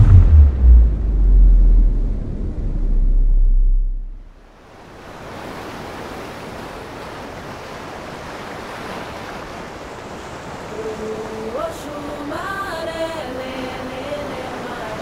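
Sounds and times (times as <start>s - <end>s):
ocean surf breaking on shore: 4.6s - 15.0s.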